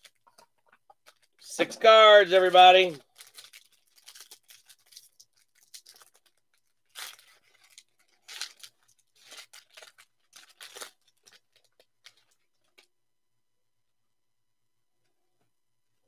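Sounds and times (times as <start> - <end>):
foil wrapper tearing and crinkling: 2.3 - 12.9.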